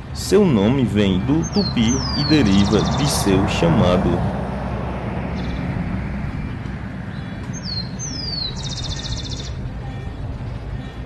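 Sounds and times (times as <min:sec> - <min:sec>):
sparrow singing: 0:00.0 - 0:11.0
low background rumble: 0:03.0 - 0:11.0.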